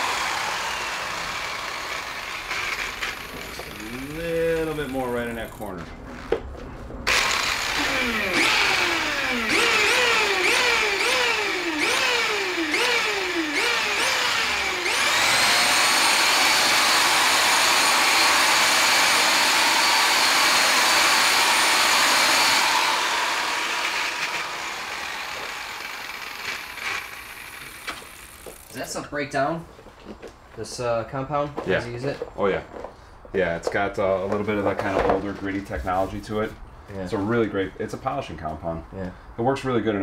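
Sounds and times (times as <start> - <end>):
electric polisher whine: 0.0 - 4.4, 7.1 - 28.7.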